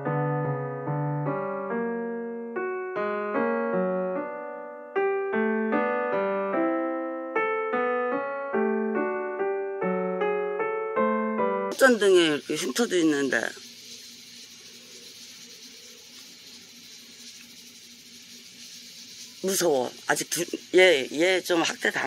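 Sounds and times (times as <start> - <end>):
slow piano melody: 0.0 - 11.8.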